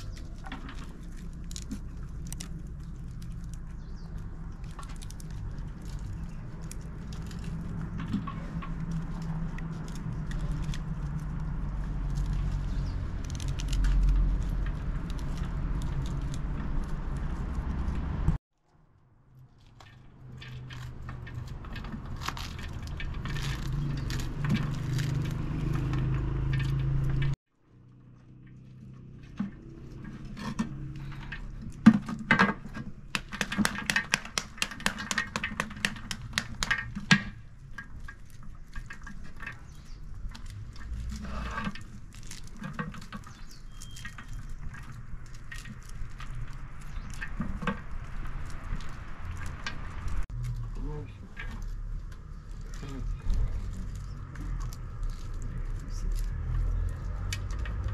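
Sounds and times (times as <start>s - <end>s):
fruit rind cracking: 0.0s - 18.2s, 19.7s - 27.3s, 28.3s - 57.9s
seeds pattering on metal basin: 0.0s - 18.3s, 33.0s - 57.9s.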